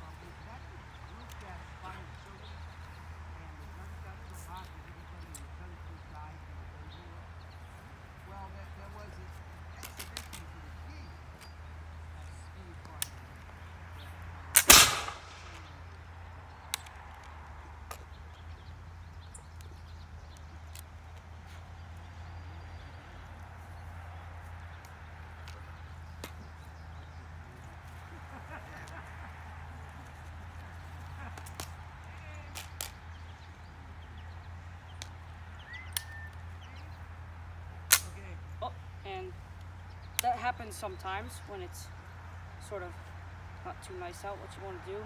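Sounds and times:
musket lock snapping: 14.6 - 15.5
burst of burning powder: 14.6 - 15.7
faint bird chirps: 35.5 - 37.0.

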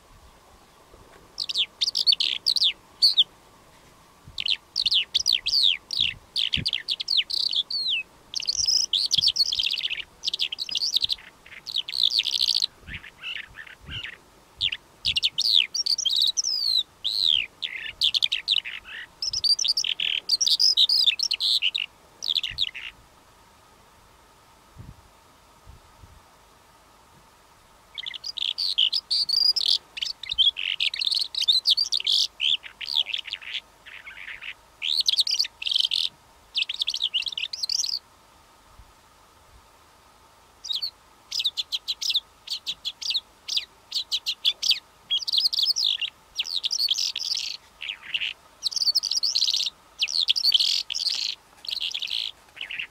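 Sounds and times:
lark singing: 1.4 - 3.3, 4.4 - 23.0, 27.9 - 38.0, 40.6 - 52.9.

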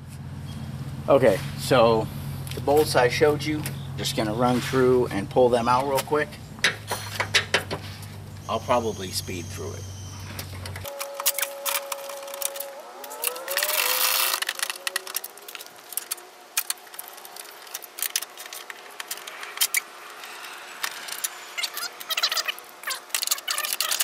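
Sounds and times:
thin rising tone: 8.5 - 23.5.

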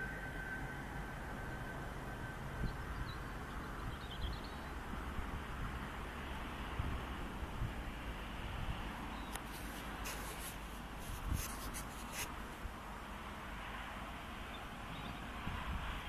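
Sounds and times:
wind on microphone: 6.7 - 12.8, 14.9 - 16.0
scratchy rubbing on microphone: 9.4 - 12.4.

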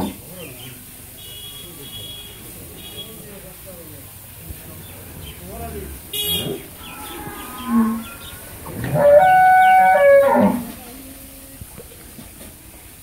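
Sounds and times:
cow mooing: 6.8 - 11.0.

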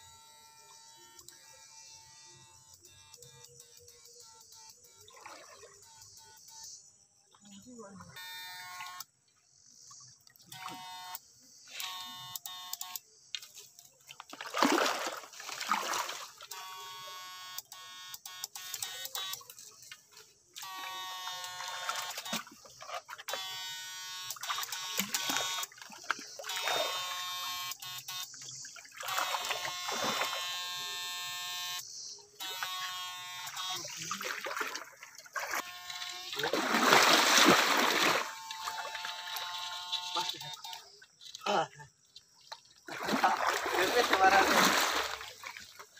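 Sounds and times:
electrofishing unit buzzing: 0.0 - 13.1, 14.4 - 45.9
water splashing: 5.1 - 5.8, 14.0 - 16.8, 19.0 - 23.5, 24.2 - 27.2, 27.9 - 30.6, 32.6 - 41.8, 42.4 - 45.9.

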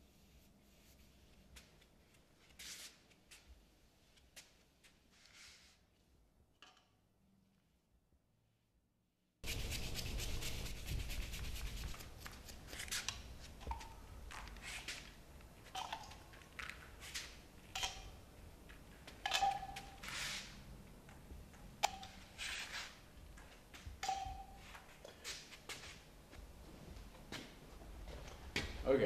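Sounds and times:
paintbrush scrubbing on canvas: 9.4 - 13.1.

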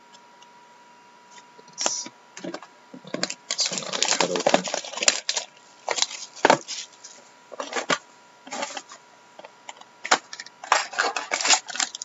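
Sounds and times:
cards rustling and clicking: 1.8 - 9.0, 9.7 - 12.0
plastic wrapper crinkling: 3.0 - 7.8, 10.1 - 12.0.

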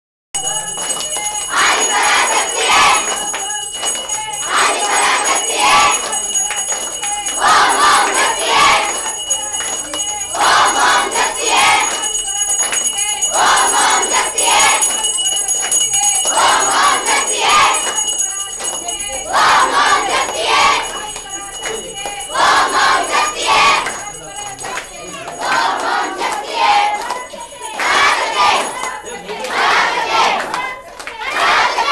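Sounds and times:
bells jingling: 0.4 - 31.0
crowd chanting: 0.4 - 31.9.

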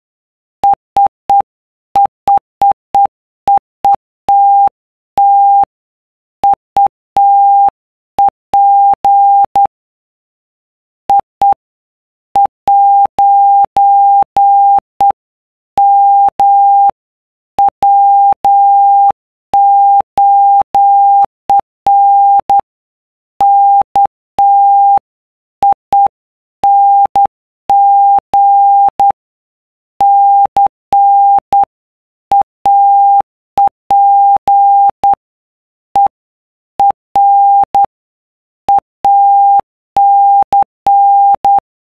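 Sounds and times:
morse code beeps: 0.6 - 5.7, 6.4 - 9.7, 11.1 - 11.6, 12.4 - 15.2, 15.8 - 17.0, 17.6 - 22.7, 23.4 - 29.2, 30.0 - 31.7, 32.3 - 35.2, 35.9 - 36.2, 36.8 - 37.9, 38.6 - 41.6.

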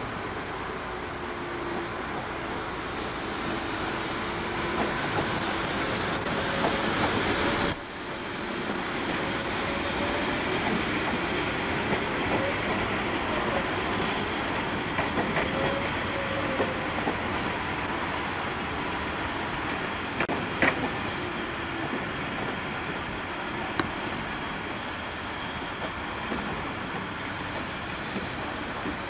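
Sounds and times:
train wheels clattering on rails: 1.6 - 18.4, 19.0 - 29.0
train wheel flanges squealing: 2.8 - 3.8, 4.7 - 17.7, 23.5 - 28.5.

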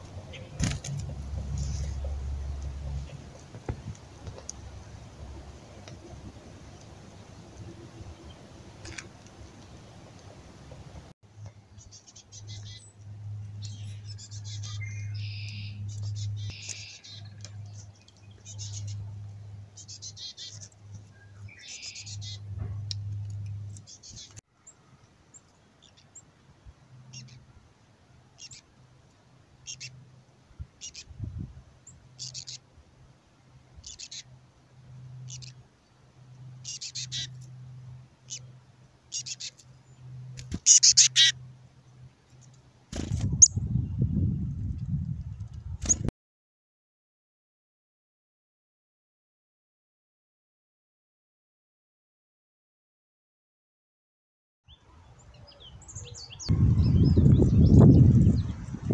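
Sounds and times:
low rumble: 0.0 - 11.1
chickadee raspy begging call: 36.6 - 37.3, 39.1 - 39.6, 40.6 - 41.4.

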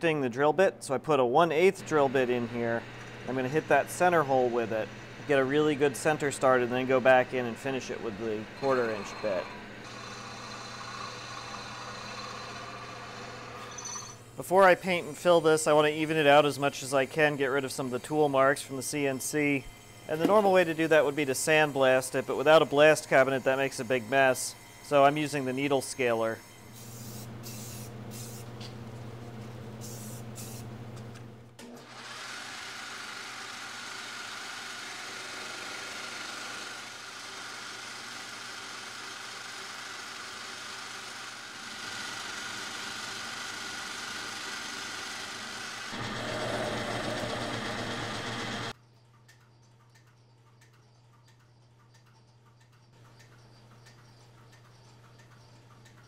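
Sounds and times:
metal lathe running: 1.7 - 26.8, 31.9 - 48.8
spray painting hiss: 26.7 - 28.5, 29.8 - 30.7.

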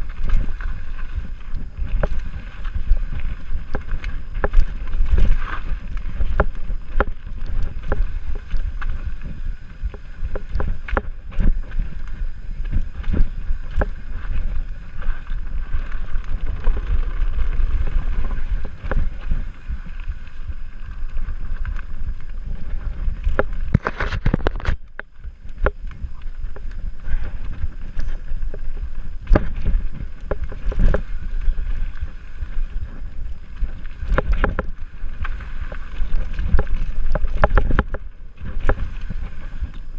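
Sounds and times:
bike rattling over bumps: 0.0 - 39.9
bike tyres rumbling on dirt: 0.0 - 39.9
wind buffeting microphone: 0.0 - 39.9.

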